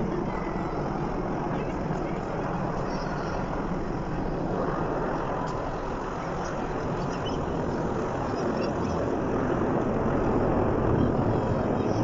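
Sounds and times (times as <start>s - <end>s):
helicopters flying overhead: 0.0s - 12.0s.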